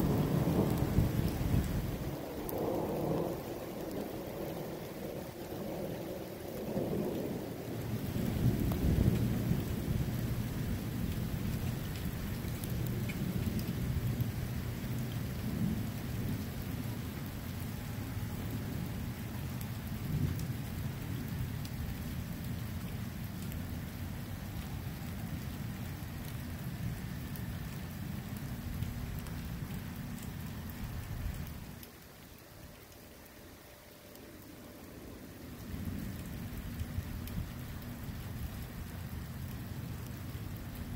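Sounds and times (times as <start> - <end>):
rolling thunder rumble: 0.0 - 5.9, 6.6 - 14.4
rain falling: 0.0 - 40.9.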